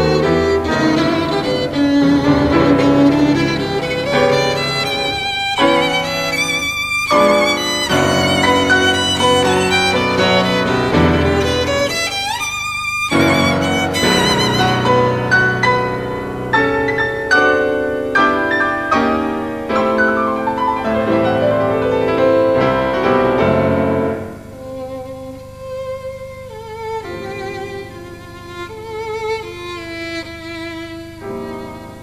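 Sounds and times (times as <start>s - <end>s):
violin melody with vibrato: 0.0s - 17.7s, 24.4s - 32.0s
piano accompaniment: 0.0s - 32.0s.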